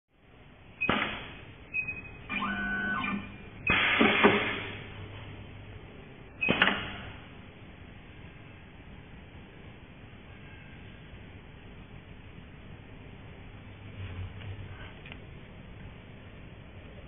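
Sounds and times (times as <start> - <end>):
low machine hum: 0.2 - 17.0
pitched machine whir: 1.7 - 4.5.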